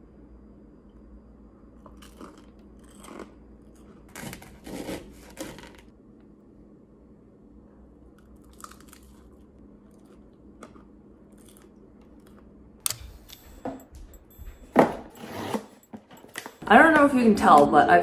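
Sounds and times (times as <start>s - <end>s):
chewing crusty toast: 1.8s - 5.8s, 8.2s - 12.5s.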